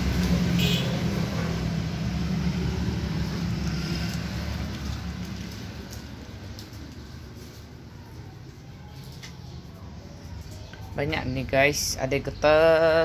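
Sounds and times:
vehicle engine humming: 0.0s - 13.0s.

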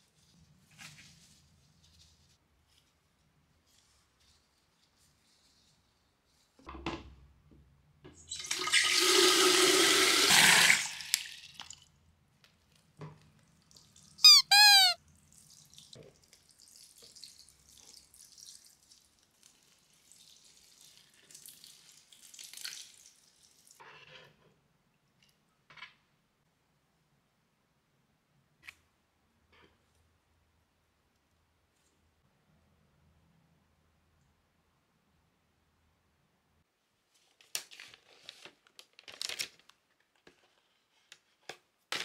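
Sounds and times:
water pouring from watering can: 8.3s - 11.8s, 15.3s - 23.8s
short squeaks falling in pitch: 14.2s - 15.0s.

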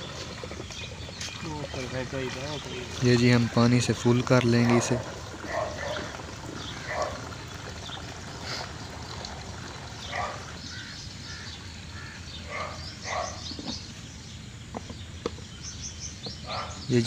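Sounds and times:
water running from hose into tank: 0.0s - 12.2s
outdoor background noise: 0.0s - 17.0s.

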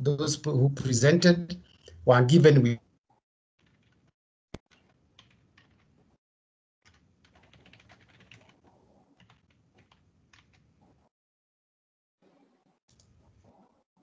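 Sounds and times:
faint keyboard typing: 3.6s - 6.1s, 6.8s - 11.1s.

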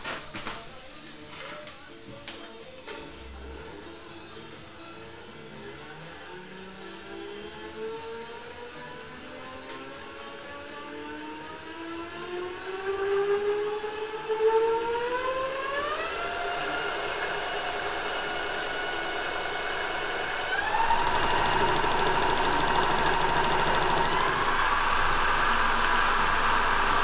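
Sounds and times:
electric motor whine rising: 3.2s - 27.0s
steady high whistle: 14.6s - 27.0s.

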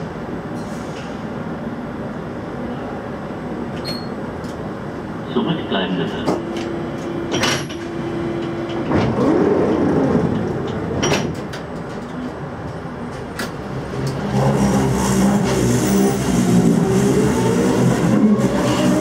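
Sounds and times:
sliding doors shutting: 7.2s - 11.8s, 13.2s - 19.0s.

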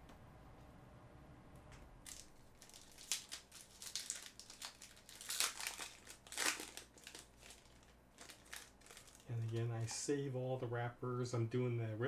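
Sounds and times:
foil wrapper crinkling: 2.0s - 9.9s.

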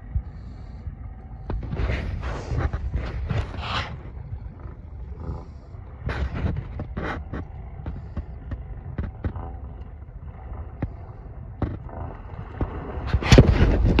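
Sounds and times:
atv engine running low: 4.2s - 14.0s.

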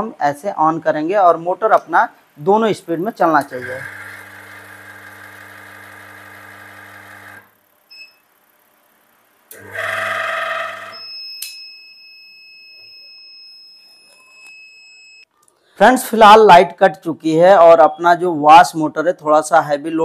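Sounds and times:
washing machine motor humming: 2.8s - 7.8s, 9.5s - 11.0s
high-pitched alarm tone: 9.7s - 11.2s.

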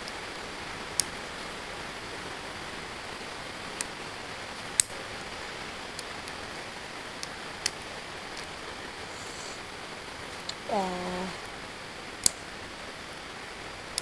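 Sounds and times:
hiss of room noise: 0.0s - 14.0s
sharp ticks: 4.7s - 5.0s, 12.2s - 12.5s.

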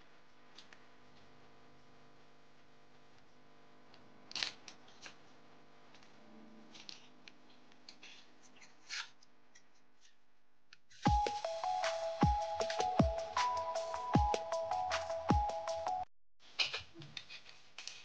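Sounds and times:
music: 11.0s - 16.1s.

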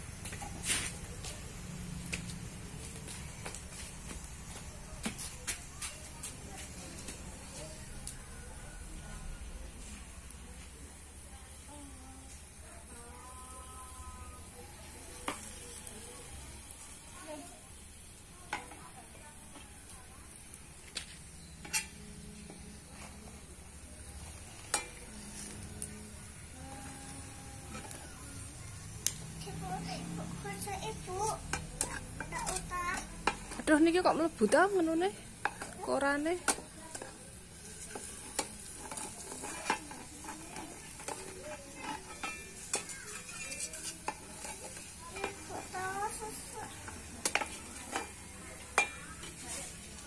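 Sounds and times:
food sizzling in a frying pan: 0.0s - 50.0s
metal utensils clinking in pan: 20.9s - 22.6s, 24.3s - 25.8s, 31.2s - 50.0s.

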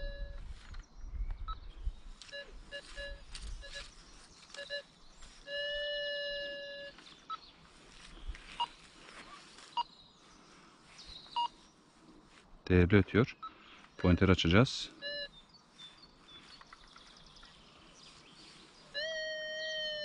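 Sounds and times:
metal detector long tone: 0.0s - 0.5s, 2.2s - 7.4s, 19.0s - 20.0s
metal detector beeping: 0.0s - 7.5s, 8.5s - 8.8s, 13.4s - 15.4s, 19.0s - 20.0s.

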